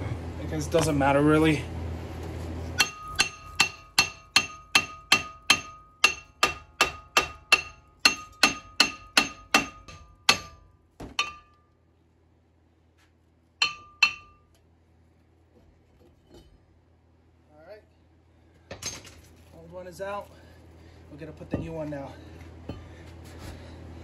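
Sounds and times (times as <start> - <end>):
hammer striking ringing brake rotor: 2.8 - 11.7, 13.6 - 14.6.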